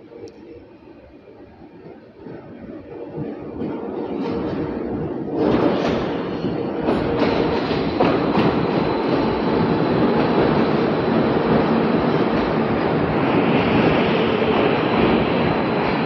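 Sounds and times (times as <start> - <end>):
train rumbling: 0.0 - 16.0
wheels clacking over rail joints: 3.6 - 16.0.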